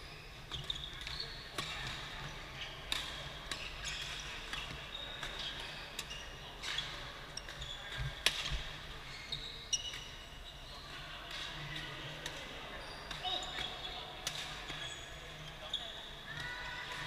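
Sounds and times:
shoes squeaking on floor: 0.0s - 1.8s, 4.9s - 8.2s, 9.0s - 10.8s.

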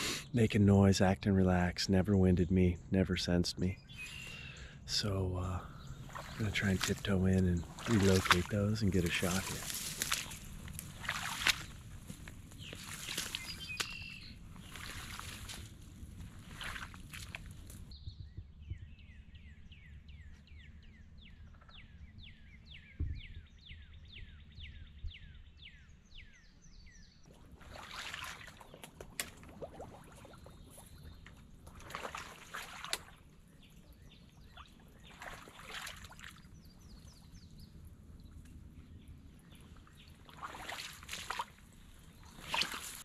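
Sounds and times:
wading through grass and water: 0.0s - 17.9s, 27.2s - 43.0s
bird calling: 3.6s - 17.6s.

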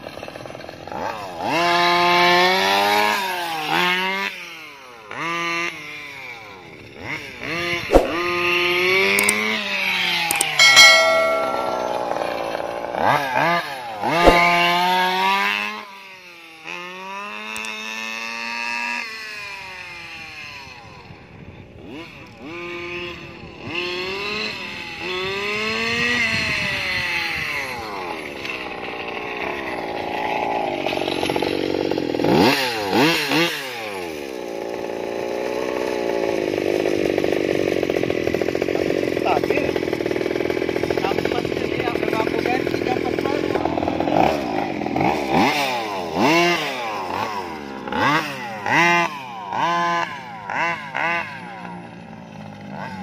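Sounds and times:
two-stroke engine revving: 0.0s - 9.8s, 21.8s - 53.0s.

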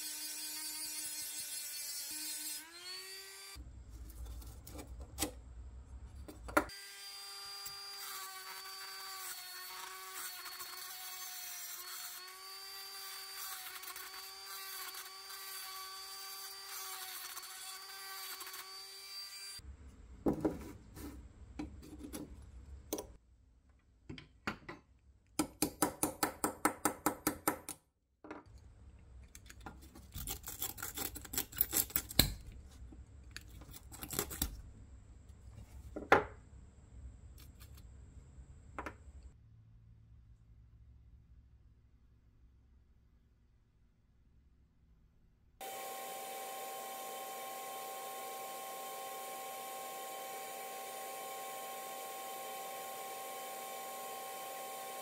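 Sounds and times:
cordless drill whining: 45.6s - 55.0s.

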